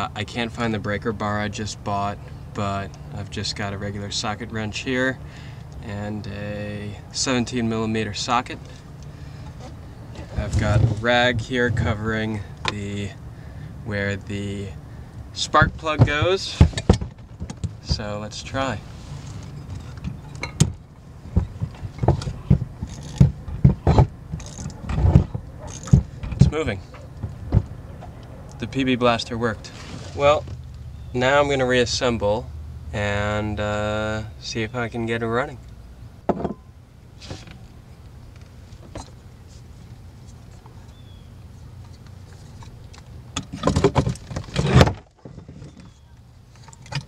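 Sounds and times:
steady low hum: 0:00.0 - 0:47.0
motor parts clicking and rattling: 0:19.3 - 0:27.8
clatter of knocks: 0:19.7 - 0:26.6.

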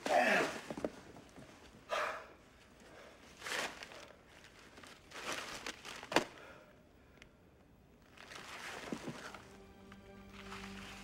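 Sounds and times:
bubble wrap crinkling: 0:03.4 - 0:06.3, 0:08.0 - 0:09.6, 0:10.3 - 0:11.0.

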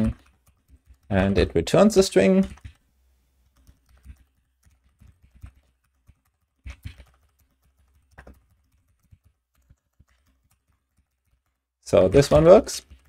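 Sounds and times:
typing on computer keyboard: 0:00.0 - 0:02.8, 0:03.4 - 0:13.0.

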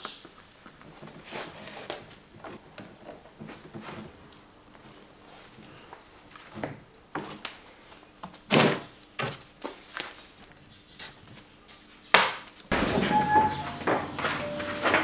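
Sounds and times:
sharp knocks and thuds: 0:12.2 - 0:15.0
steady background sound: 0:12.7 - 0:15.0.

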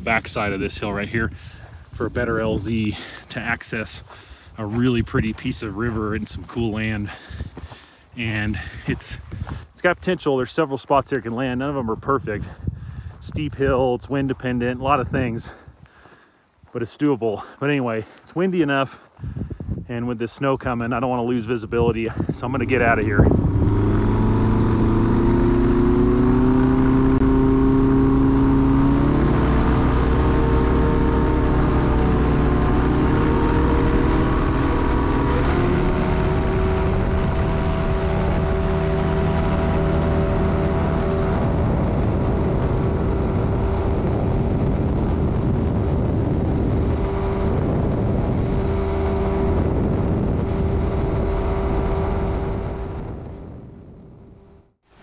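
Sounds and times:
light aircraft engine and propeller: 0:22.2 - 0:54.7.

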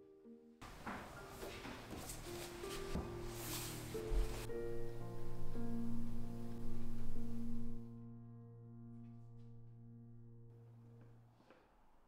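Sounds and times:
soft piano music: 0:00.0 - 0:11.8
light soft rubbing: 0:01.2 - 0:04.6.

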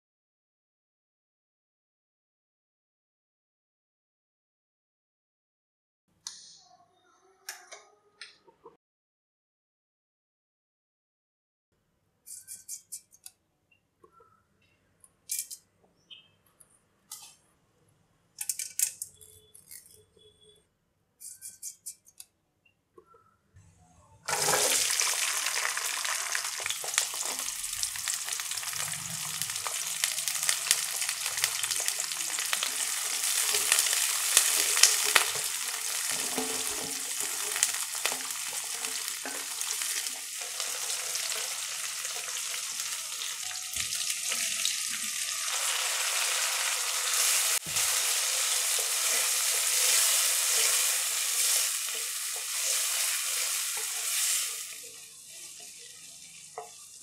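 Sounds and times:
shallots sizzling in oil: 0:24.3 - 0:57.0
wooden spatula scraping pan: 0:36.1 - 0:37.7.

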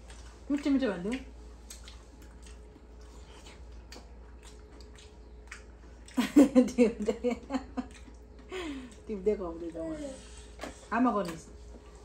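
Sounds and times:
clicks and rustles of eating: 0:00.0 - 0:12.0
woman laughing: 0:06.2 - 0:07.9.

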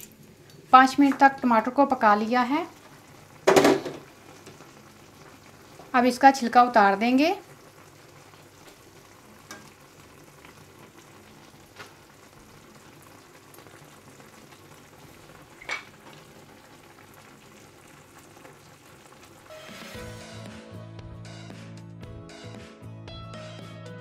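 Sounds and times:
meat and tomatoes sizzling in oil: 0:00.0 - 0:20.5
background music: 0:19.5 - 0:24.0.

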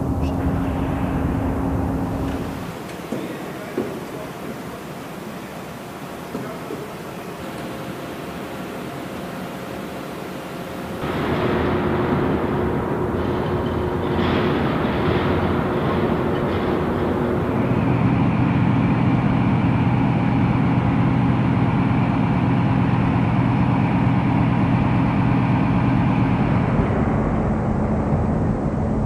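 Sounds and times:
low hum: 0:00.0 - 0:02.9, 0:07.2 - 0:29.0
steady mechanical drone: 0:00.0 - 0:29.0.

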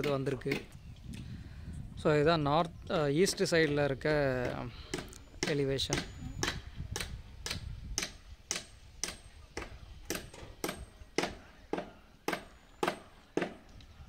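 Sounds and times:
sharp evenly spaced clicks: 0:04.4 - 0:11.4.

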